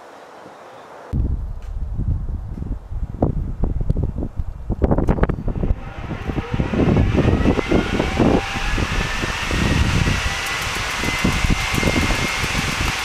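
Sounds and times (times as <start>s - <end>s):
rush of air: 1.1s - 13.0s
wind buffeting microphone: 1.1s - 13.0s
jet engine whine rising: 5.2s - 13.0s.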